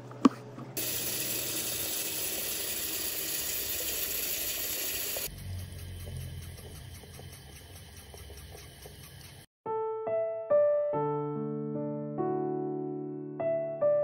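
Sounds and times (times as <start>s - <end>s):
tap water running onto fabric: 0.8s - 5.3s
water stream into basin: 0.8s - 9.5s.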